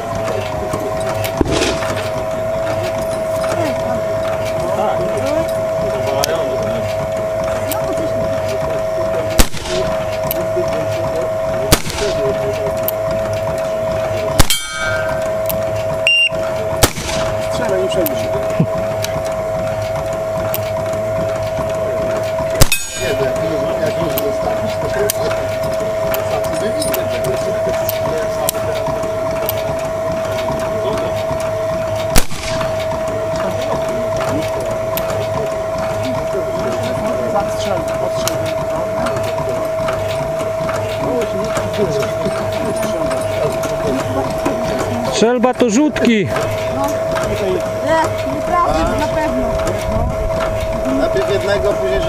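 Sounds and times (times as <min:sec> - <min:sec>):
metallic ringing: 0:00.0 - 0:52.0
steady high hum: 0:00.0 - 0:52.0
rifle shots: 0:01.4 - 0:01.9, 0:09.4 - 0:09.8, 0:11.7 - 0:12.2, 0:16.8 - 0:17.3, 0:22.6 - 0:23.0, 0:32.2 - 0:32.7
high-pitched whine: 0:21.0 - 0:38.9.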